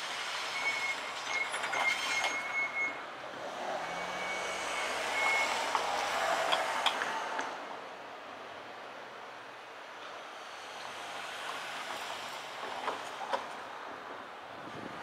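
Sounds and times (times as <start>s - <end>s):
cars driving over crossing: 0.1s - 8.7s.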